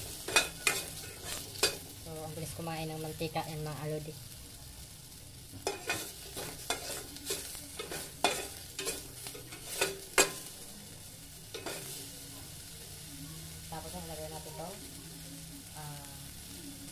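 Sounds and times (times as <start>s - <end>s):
food sizzling in oil: 0.0s - 16.9s
spatula scraping metal pot: 5.6s - 10.4s.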